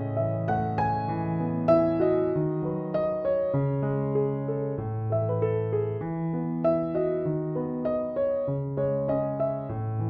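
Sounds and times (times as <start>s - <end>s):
gentle keyboard melody: 0.0s - 10.0s.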